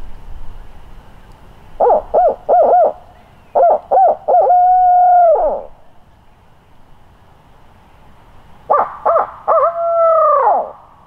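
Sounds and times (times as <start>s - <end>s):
owl hooting: 1.8s - 5.8s, 8.7s - 10.9s.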